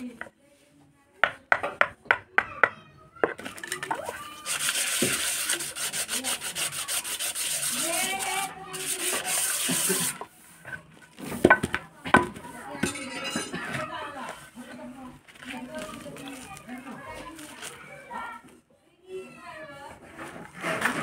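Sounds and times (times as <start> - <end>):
sandpaper rubbing on wood: 4.4 - 10.3.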